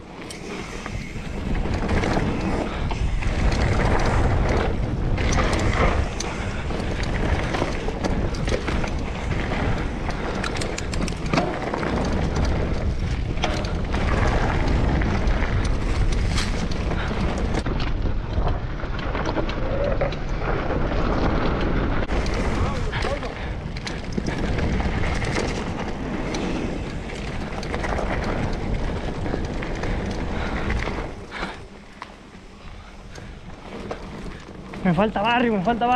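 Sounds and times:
bike clicks and rattles: 0:00.0 - 0:35.9
bike tyres rolling on dirt: 0:00.0 - 0:35.9
wind rushing over microphone: 0:00.0 - 0:35.9.

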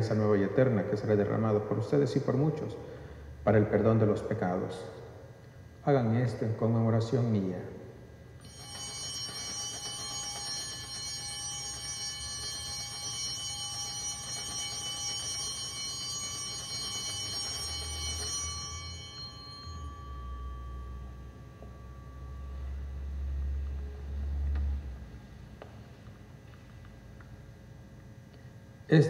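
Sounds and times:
altar bell ringing: 0:08.4 - 0:24.0.

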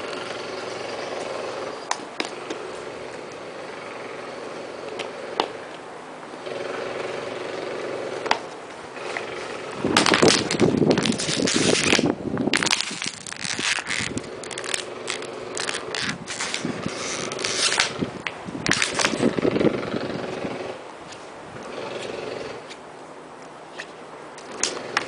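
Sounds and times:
plastic bottle crackling: 0:10.0 - 0:17.9.

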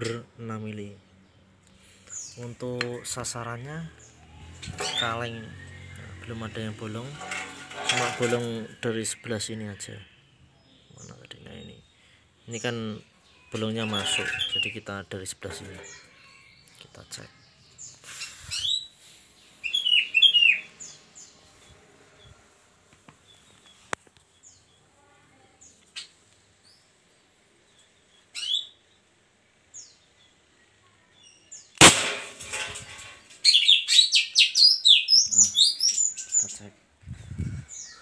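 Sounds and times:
birds chirping: 0:00.0 - 0:38.0
airsoft pistol shot: 0:31.8 - 0:32.4.

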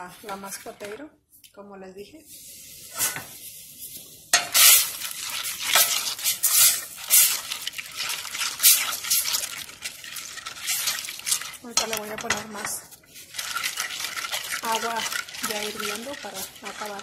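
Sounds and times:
spoon stirring in metal pot: 0:04.3 - 0:17.0.

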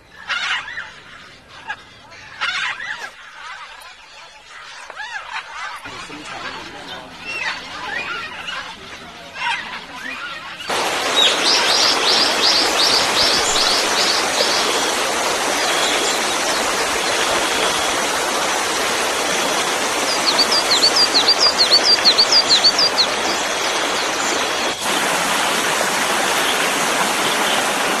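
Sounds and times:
waterfall rushing: 0:10.7 - 0:28.0
bird chirping: 0:19.3 - 0:24.8.

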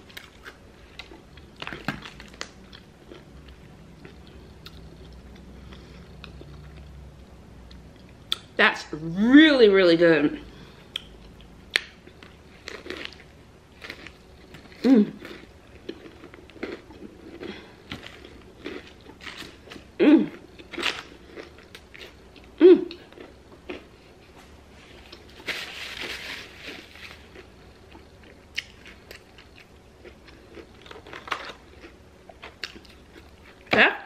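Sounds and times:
chewing and crunching: 0:00.0 - 0:07.0, 0:10.9 - 0:33.7
person humming mm: 0:14.8 - 0:15.3, 0:20.0 - 0:20.4, 0:22.6 - 0:23.0.

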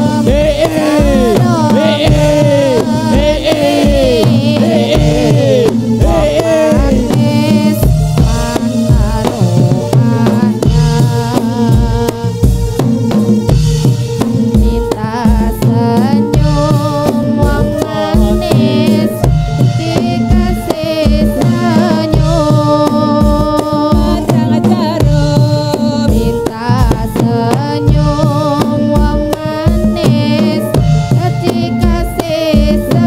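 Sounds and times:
wavering melody: 0:00.0 - 0:12.1
hand drums beating: 0:00.0 - 0:33.0.

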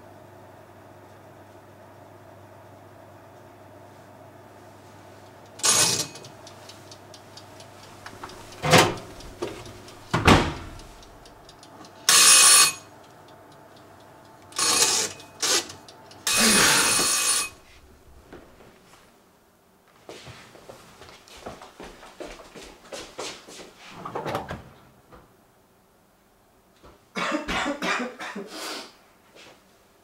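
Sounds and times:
bell-like electric ringing: 0:05.6 - 0:06.2, 0:12.1 - 0:12.9, 0:14.6 - 0:15.4, 0:16.3 - 0:17.6.

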